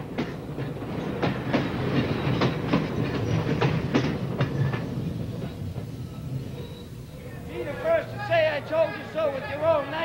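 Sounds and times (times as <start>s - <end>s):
wheels clicking over rail joints: 0.0s - 6.9s
streetcar rumbling: 0.0s - 10.0s.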